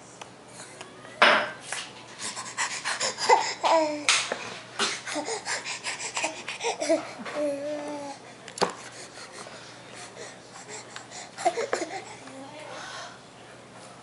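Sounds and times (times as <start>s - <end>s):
baby breathing noisily: 2.2s - 13.2s.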